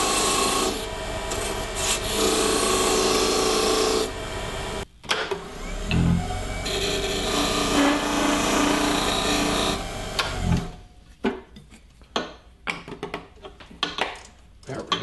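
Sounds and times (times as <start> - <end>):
lathe tool scraping wood: 0.0 - 4.8, 5.6 - 10.8.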